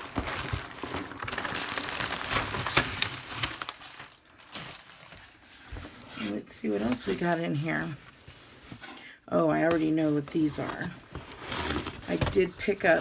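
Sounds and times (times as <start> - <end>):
bubble wrap crinkling: 0.0 - 8.9.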